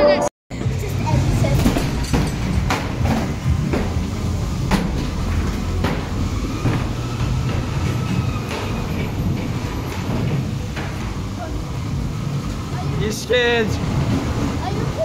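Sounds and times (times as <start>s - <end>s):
ride car low rumble: 0.5s - 15.0s
sharp clunks: 1.6s - 11.2s.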